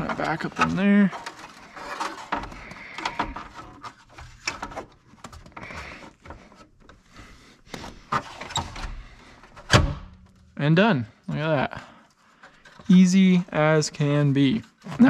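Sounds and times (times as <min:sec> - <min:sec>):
plastic trim rustling and scraping: 0:00.0 - 0:09.7.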